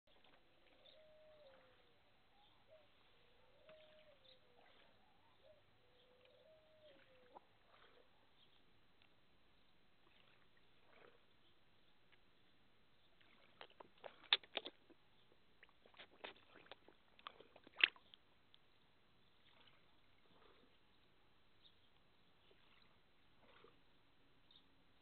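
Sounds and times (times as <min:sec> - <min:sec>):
fish slurping at water surface: 0:00.1 - 0:05.4, 0:06.2 - 0:08.6, 0:10.0 - 0:11.5, 0:13.1 - 0:18.2, 0:19.4 - 0:20.8, 0:22.4 - 0:23.9
wet smacks and small splashes: 0:13.1 - 0:18.7, 0:19.4 - 0:20.6.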